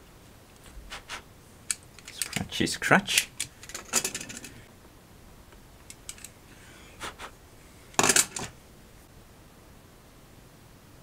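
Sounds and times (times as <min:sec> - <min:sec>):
hand tools clattering on workbench: 0:08.0 - 0:08.5.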